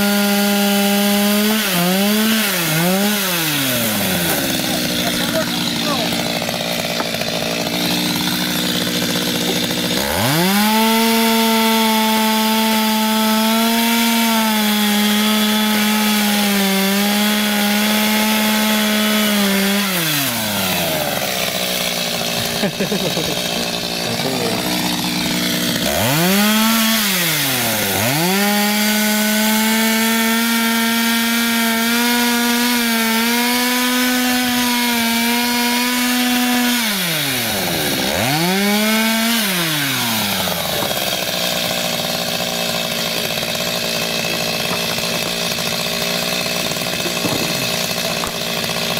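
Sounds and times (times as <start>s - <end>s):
chainsaw cutting wood: 0.0s - 48.9s.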